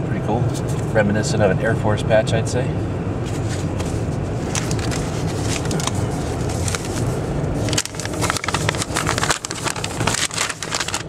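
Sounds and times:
car cabin low rumble: 0.0s - 11.0s
paper crinkling and rustling: 3.3s - 11.0s.

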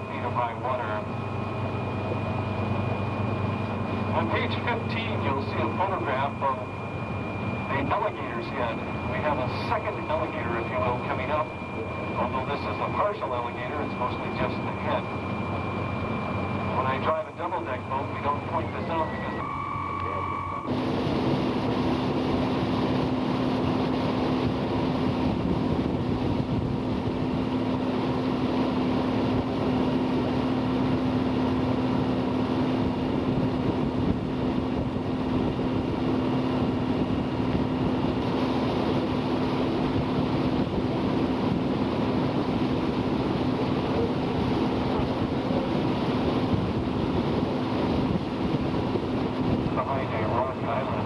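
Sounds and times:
boat engine humming: 0.0s - 51.0s
wind and water rushing: 20.7s - 51.0s.

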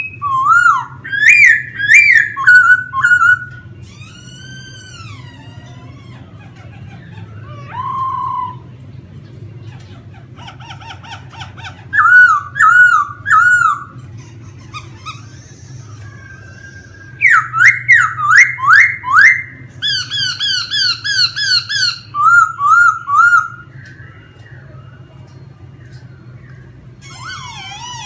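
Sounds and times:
bird singing whistled phrases: 0.0s - 4.5s, 16.8s - 25.2s
steady low hum: 0.0s - 28.0s.

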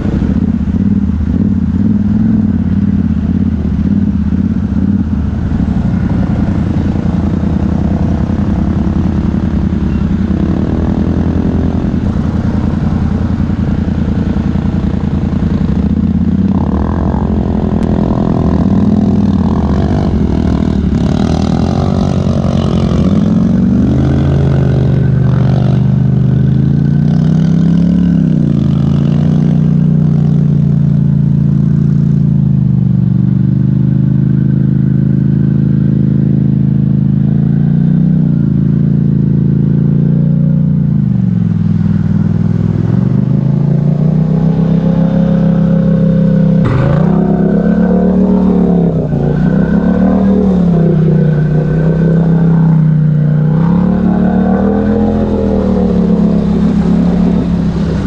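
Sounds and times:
atv engine revving: 0.0s - 32.4s, 33.0s - 58.0s.

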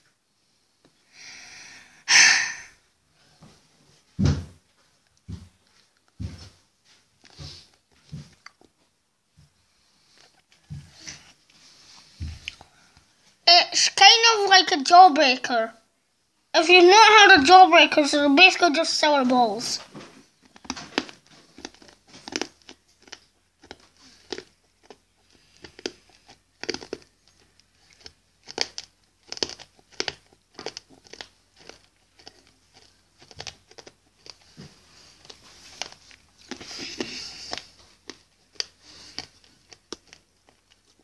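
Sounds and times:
hard candy crunching: 20.3s - 41.0s.

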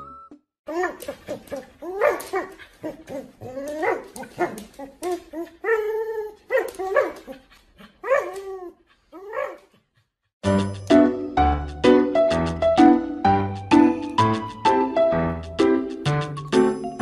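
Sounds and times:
dog whining and yipping: 0.7s - 9.8s.

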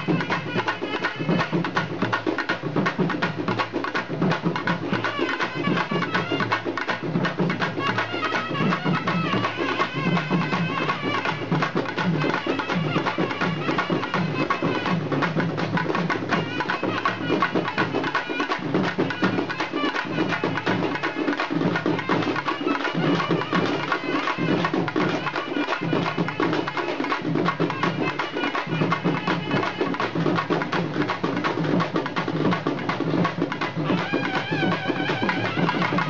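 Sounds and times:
drums beating a busy rhythm: 0.0s - 36.0s.

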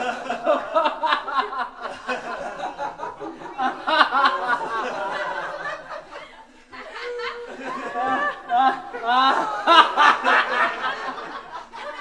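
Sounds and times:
group of people laughing: 0.0s - 12.0s.

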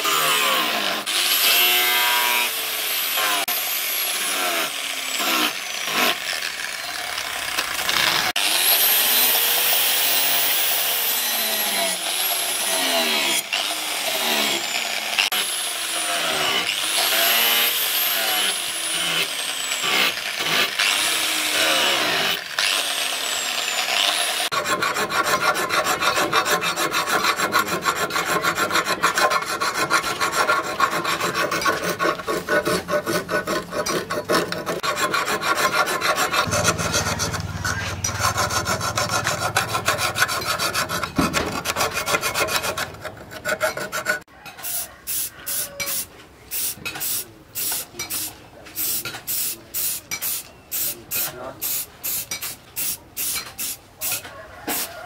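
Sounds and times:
angle grinder whining: 0.0s - 44.1s
file stroking steel: 23.3s - 44.8s.

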